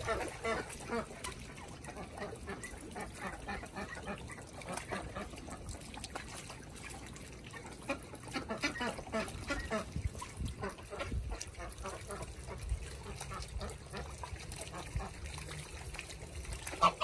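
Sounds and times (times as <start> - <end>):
geese dabbling in water: 0.0 - 17.0.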